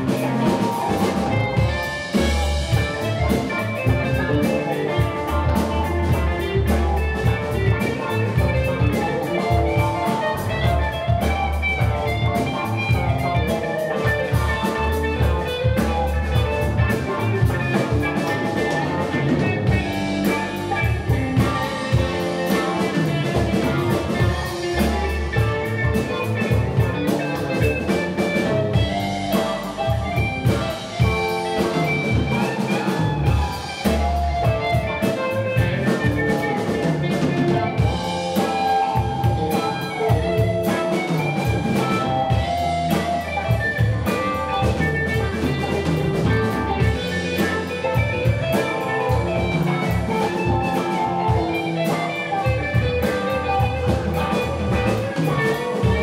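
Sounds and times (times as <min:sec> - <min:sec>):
live rock band playing: 0:00.0 - 0:56.0
melodic guitar line: 0:00.0 - 0:56.0.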